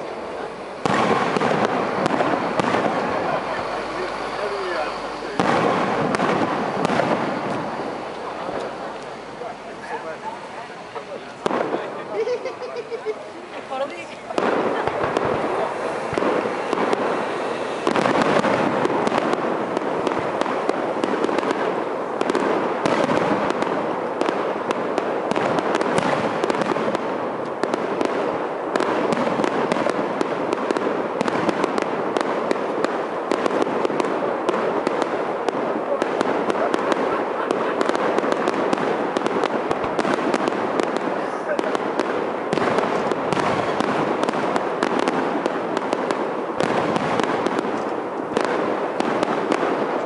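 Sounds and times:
fireworks bursting and crackling: 0:00.0 - 0:50.0.

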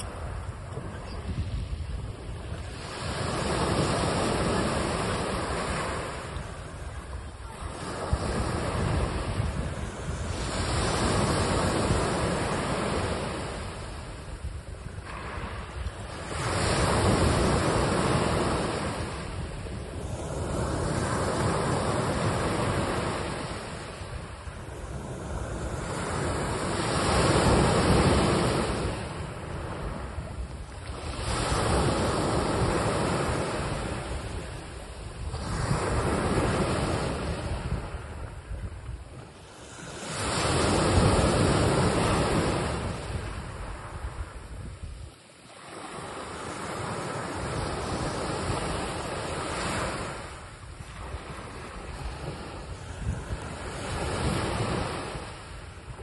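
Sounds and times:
sea waves washing ashore: 0:00.0 - 0:56.0.

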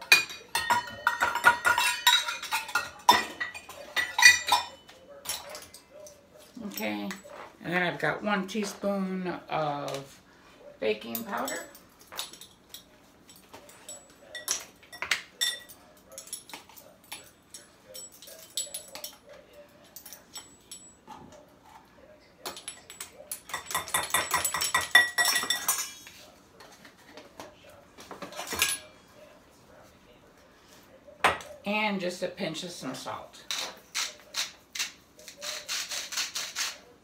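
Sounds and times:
measuring spoon clinking and scraping: 0:13.6 - 0:19.4.

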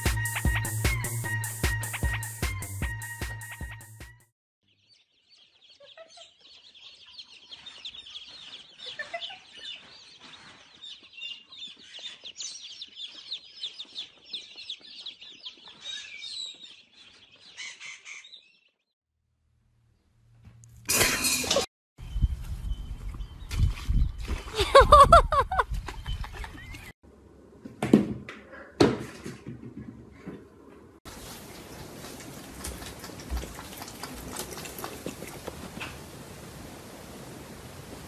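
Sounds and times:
background music: 0:00.0 - 0:04.3
chicks peeping: 0:04.7 - 0:18.6.

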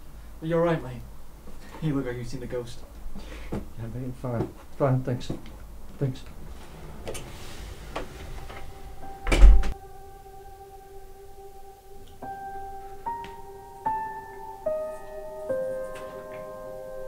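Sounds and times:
soft piano film score: 0:04.2 - 0:17.0
steady low tone: 0:05.4 - 0:17.0
door shutting with heavy thud: 0:06.3 - 0:09.8.

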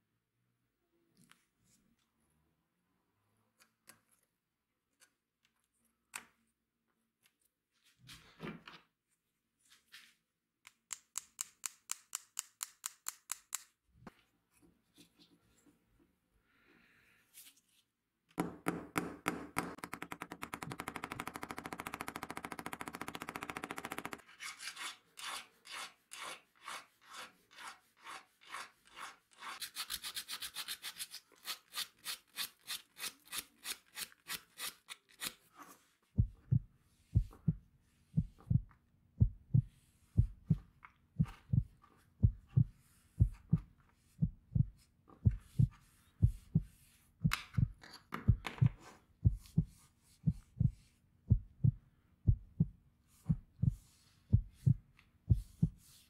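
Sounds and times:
hand file rasping: 0:24.4 - 0:35.4
cloth pad rubbing with soft thumps: 0:53.1 - 0:56.0.

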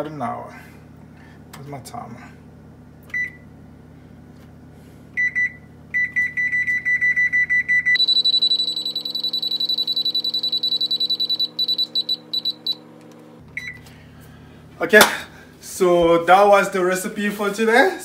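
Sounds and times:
electronic beeps: 0:05.2 - 0:12.8.

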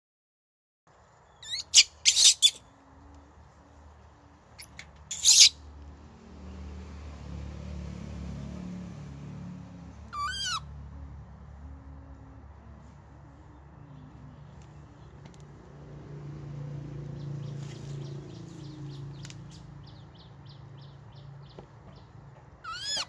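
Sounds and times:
baby monkey screaming: 0:01.4 - 0:02.6, 0:04.6 - 0:05.6, 0:10.0 - 0:10.7, 0:22.6 - 0:23.0.

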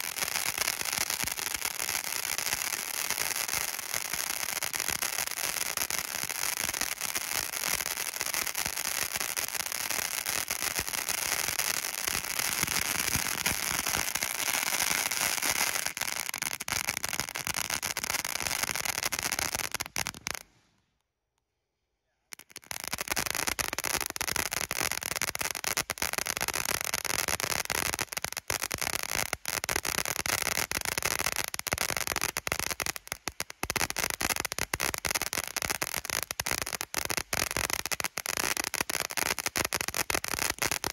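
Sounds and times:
firework fountain hissing: 0:00.0 - 0:20.5
firework crackling: 0:00.0 - 0:20.7, 0:22.3 - 0:40.9.

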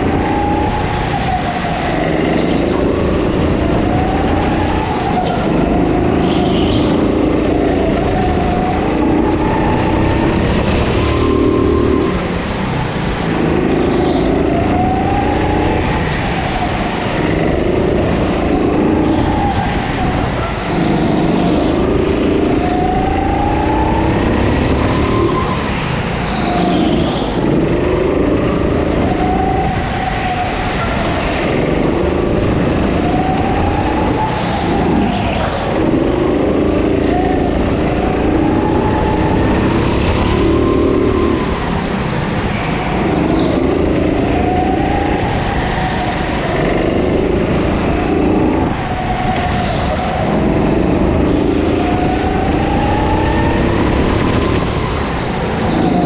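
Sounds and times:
go-kart engine revving: 0:00.0 - 0:56.0.

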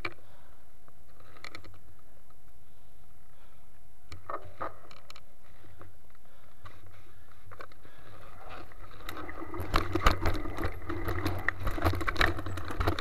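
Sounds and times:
low rumble of bike riding: 0:00.0 - 0:13.0
bike rattling over rough ground: 0:04.3 - 0:13.0.

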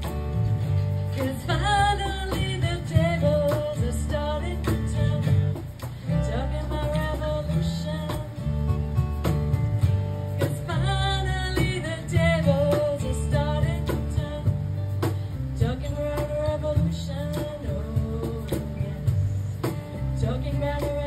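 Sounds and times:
guitar backing track: 0:00.0 - 0:21.0
woman singing into microphone: 0:01.0 - 0:08.8, 0:10.4 - 0:21.0.

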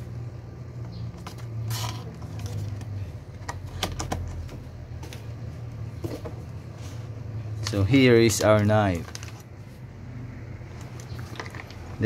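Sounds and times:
packaging clicks and rustles: 0:01.1 - 0:05.3, 0:07.6 - 0:09.6, 0:10.7 - 0:12.0.

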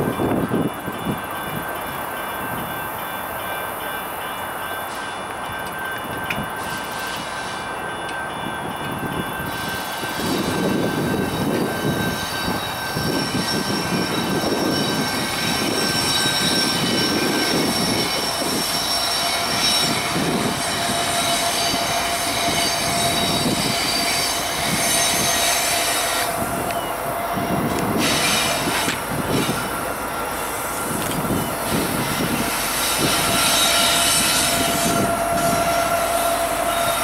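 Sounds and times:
diesel locomotives rumbling: 0:00.0 - 0:37.0
high-pitched wheel squeal: 0:09.5 - 0:29.9, 0:30.5 - 0:37.0.

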